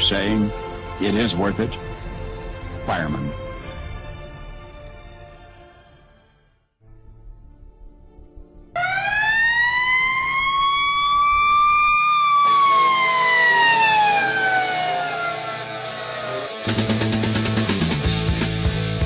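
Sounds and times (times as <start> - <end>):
fire truck siren wailing: 8.8 - 17.7.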